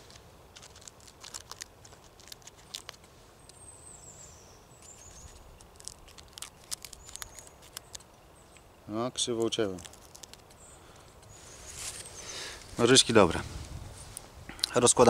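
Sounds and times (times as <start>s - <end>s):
bird chirping: 3.4s - 13.1s
small scissors snipping a dry leaf: 4.8s - 8.1s.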